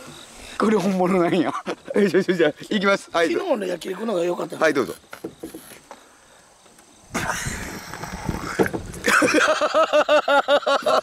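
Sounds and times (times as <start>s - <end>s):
loud rhythmic laughter: 7.1s - 7.9s, 9.0s - 11.0s.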